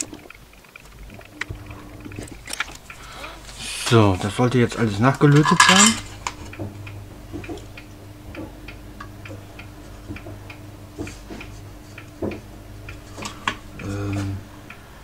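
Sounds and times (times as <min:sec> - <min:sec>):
light regular ticking: 0:00.0 - 0:15.0
steady low hum: 0:00.0 - 0:15.0.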